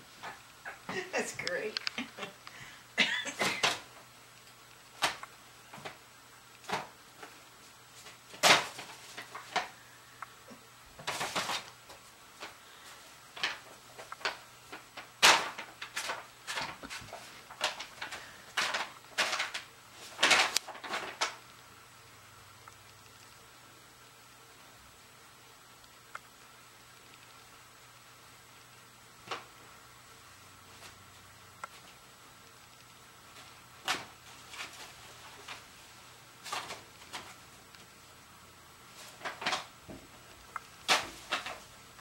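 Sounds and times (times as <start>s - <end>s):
paper bag crinkling and rustling: 8.0s - 9.8s, 11.0s - 12.6s, 13.3s - 21.4s, 36.4s - 37.5s, 38.9s - 39.8s, 40.8s - 42.0s.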